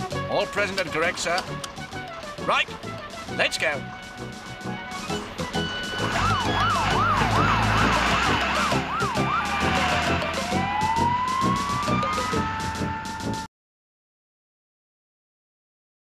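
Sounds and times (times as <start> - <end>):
music: 0.0 - 13.5
low engine rumble: 0.6 - 11.9
fire engine siren wailing: 3.8 - 13.5.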